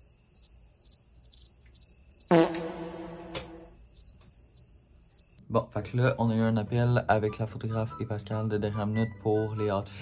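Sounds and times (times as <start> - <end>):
crickets chirping: 0.0 - 5.4.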